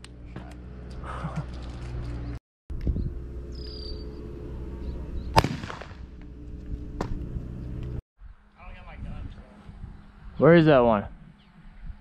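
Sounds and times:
steady low hum: 0.0s - 10.4s
sharp cracks: 5.3s - 6.1s.

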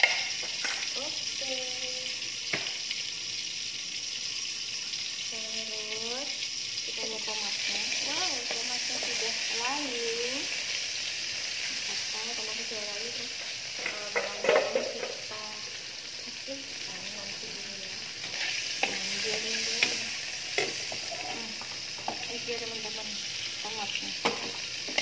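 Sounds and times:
tomatoes sizzling in hot oil: 0.0s - 25.0s.

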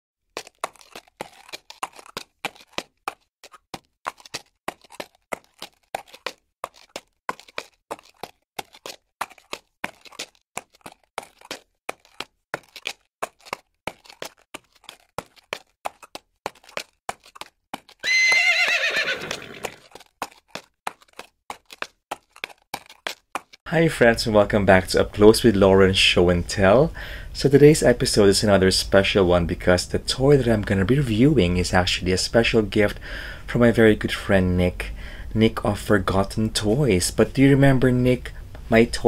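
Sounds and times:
horse hooves clip-clopping: 0.3s - 25.3s
horse whinny: 18.0s - 19.9s.

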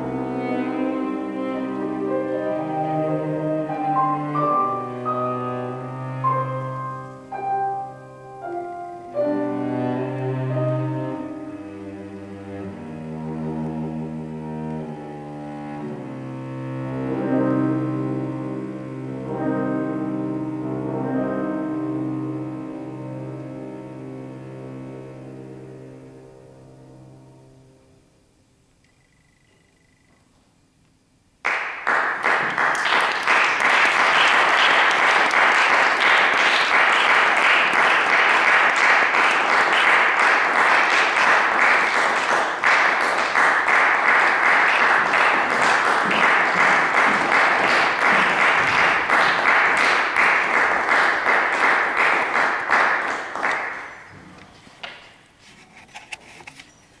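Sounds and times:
audience applauding: 31.4s - 54.2s.

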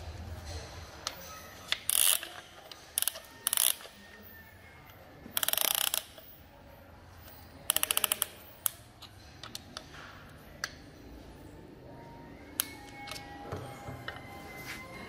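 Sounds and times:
ratchet clicking: 1.7s - 3.9s, 5.4s - 6.3s, 7.7s - 8.8s.

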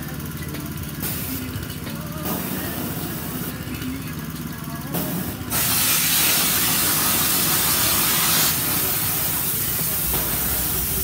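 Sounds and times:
high-pressure spray jet hissing: 5.0s - 11.0s.

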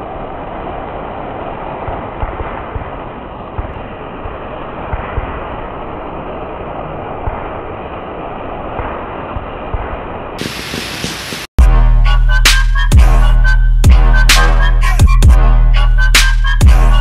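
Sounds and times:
sparkler hissing and crackling: 0.0s - 11.5s
loud electronic music: 10.4s - 17.0s.

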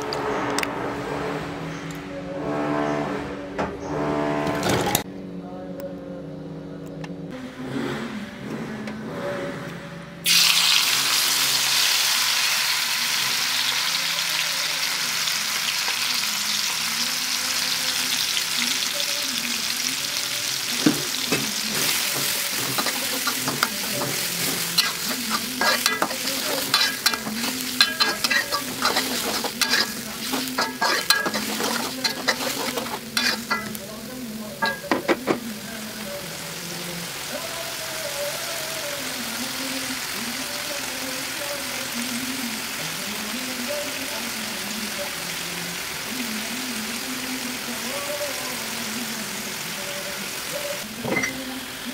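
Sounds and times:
paste sizzling in hot oil: 10.3s - 33.8s
spatula scraping wok: 20.6s - 33.9s.

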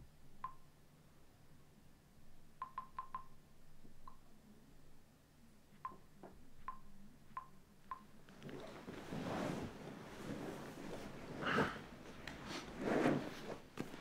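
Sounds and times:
bedding rustling: 8.3s - 14.0s.

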